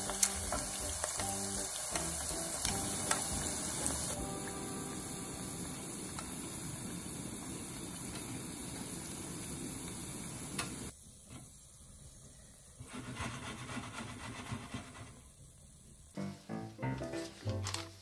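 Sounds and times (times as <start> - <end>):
food sizzling in hot oil: 0.0 - 12.2
faint handling sounds: 17.0 - 18.0.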